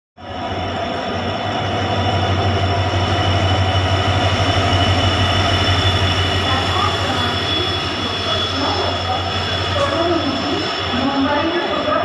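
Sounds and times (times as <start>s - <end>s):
diesel locomotive engine throbbing: 0.2s - 12.0s.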